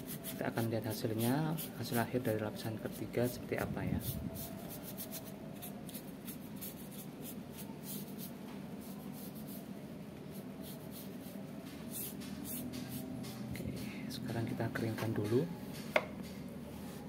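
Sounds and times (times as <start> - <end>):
paintbrush strokes: 4.0 - 13.4.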